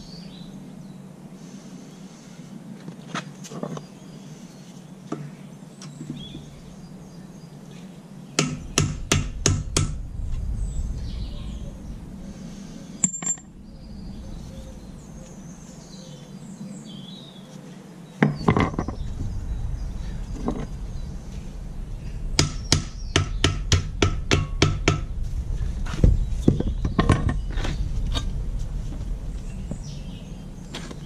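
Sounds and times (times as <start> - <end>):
hammer striking metal: 8.4 - 10.0, 22.4 - 25.1.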